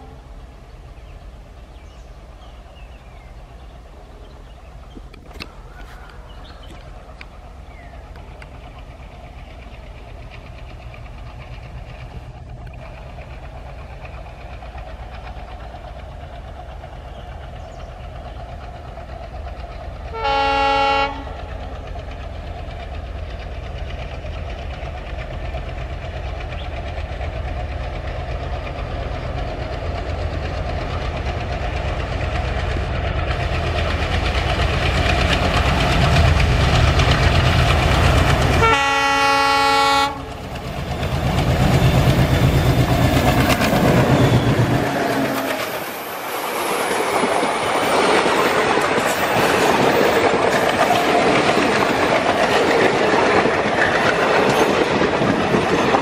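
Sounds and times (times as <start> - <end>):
diesel locomotive engine rumble: 0.0 - 56.0
train horn blast: 20.1 - 21.6, 38.6 - 40.4.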